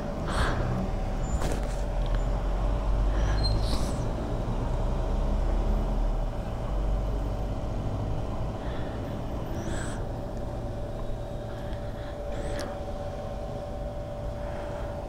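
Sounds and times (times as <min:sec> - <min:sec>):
low vehicle rumble: 0:00.0 - 0:15.0
fuel pump humming: 0:07.2 - 0:15.0.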